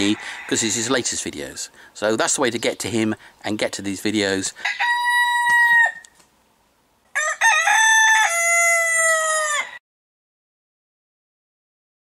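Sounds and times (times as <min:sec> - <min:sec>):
rooster crowing: 0:00.0 - 0:01.0, 0:04.6 - 0:06.2, 0:07.1 - 0:09.8.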